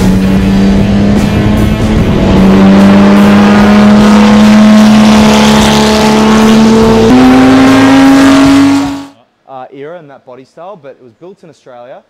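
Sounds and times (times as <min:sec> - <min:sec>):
race car engine: 0:00.0 - 0:09.2.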